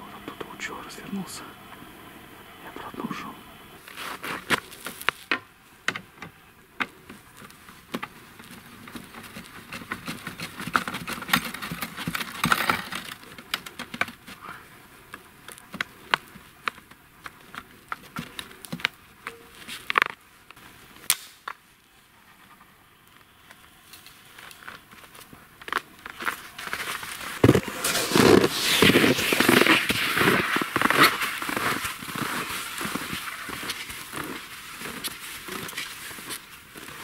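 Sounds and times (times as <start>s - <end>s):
rustling and crackling of flags: 3.7s - 37.0s
skis scuffing in snow: 3.8s - 5.3s, 23.9s - 37.0s.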